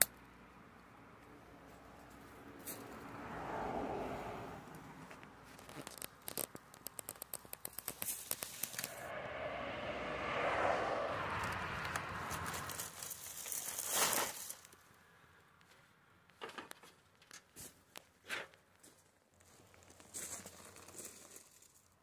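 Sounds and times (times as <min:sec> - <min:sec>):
sharp scrape: 0:07.7 - 0:14.7
dry palm fronds rustling: 0:11.8 - 0:14.8.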